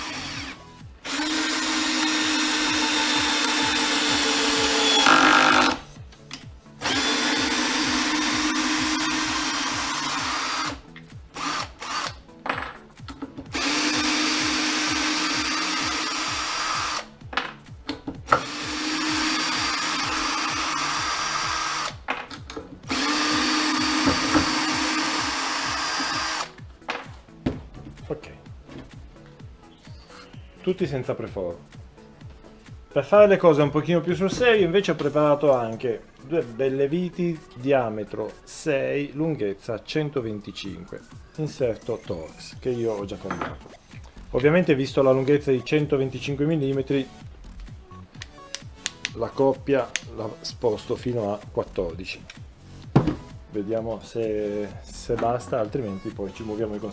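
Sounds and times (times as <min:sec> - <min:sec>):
cordless drill motor humming: 0:00.0 - 0:05.8, 0:06.8 - 0:10.8, 0:11.4 - 0:12.2, 0:13.5 - 0:17.1, 0:18.3 - 0:22.0, 0:22.9 - 0:26.5
drill clicks: 0:00.0 - 0:12.2, 0:13.1 - 0:17.1, 0:18.3 - 0:26.6.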